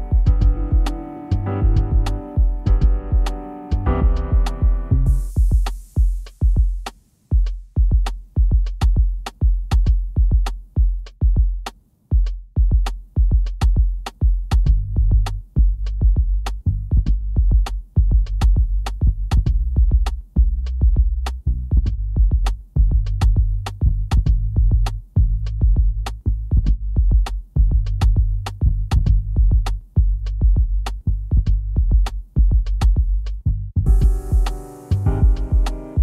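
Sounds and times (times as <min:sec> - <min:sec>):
lo-fi hip-hop music: 0:00.0 - 0:08.0, 0:33.9 - 0:36.0.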